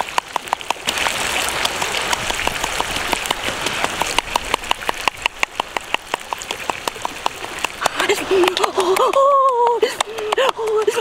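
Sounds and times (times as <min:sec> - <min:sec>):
fire crackles and pops: 0:00.0 - 0:08.0.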